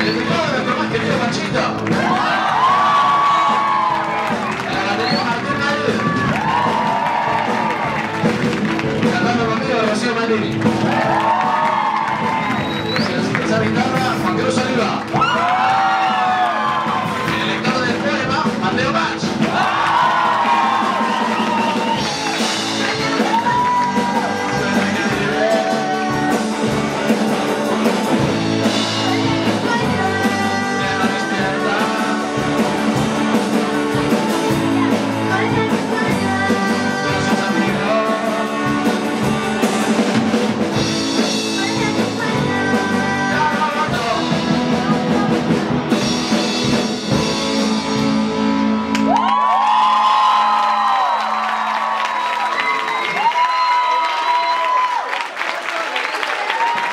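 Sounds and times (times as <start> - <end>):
rock band playing live: 0.0 - 54.1
person singing lead vocals: 22.8 - 39.9, 41.2 - 45.6.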